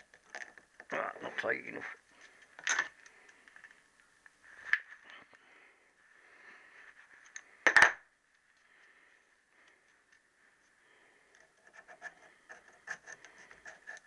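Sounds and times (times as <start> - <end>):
faint handling and rubbing noise: 0.0 - 7.7, 8.3 - 14.0.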